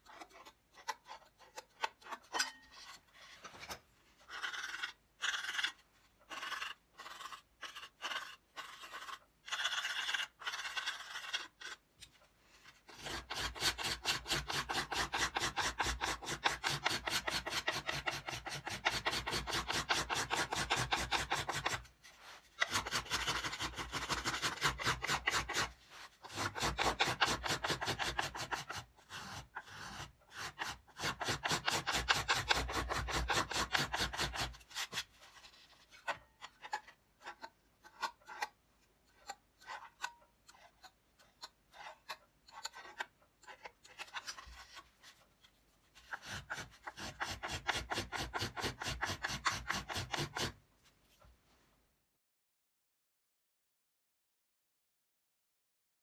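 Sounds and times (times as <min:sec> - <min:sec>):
finger plane shaving wood: 0:12.9 - 0:45.2, 0:46.0 - 0:50.6.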